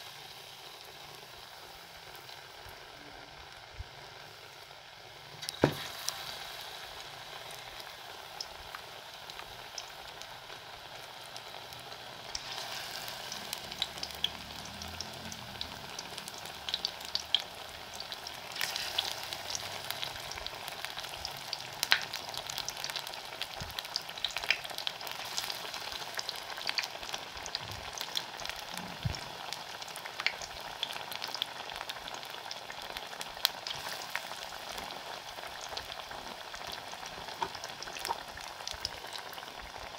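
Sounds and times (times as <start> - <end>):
deep-frying sizzle with pops: 0.0 - 39.9.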